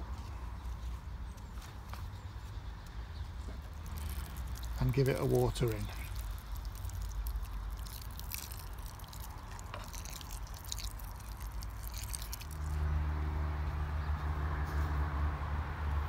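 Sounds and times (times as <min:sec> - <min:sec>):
water pouring onto compost: 0:03.6 - 0:13.0.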